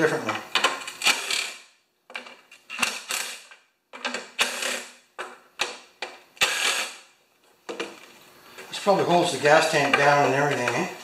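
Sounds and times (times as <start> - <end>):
drill whirring: 6.4 - 7.0.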